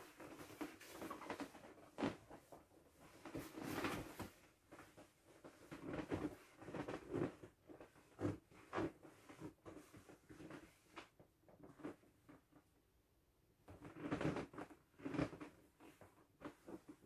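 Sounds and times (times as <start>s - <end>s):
vinyl rubbing and handling: 0.0s - 12.0s.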